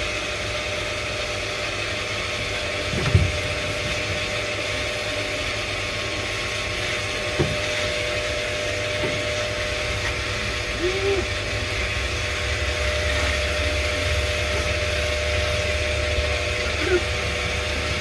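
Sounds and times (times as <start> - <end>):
motor humming: 0.0 - 18.0
water hissing from hose: 0.0 - 18.0
dull thumps: 2.8 - 4.1, 7.3 - 7.8.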